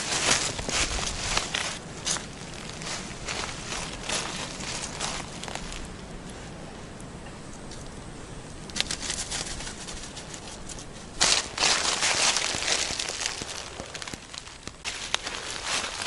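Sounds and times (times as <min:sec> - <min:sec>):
footsteps crunching dry leaves: 0:00.0 - 0:06.0, 0:11.1 - 0:16.0.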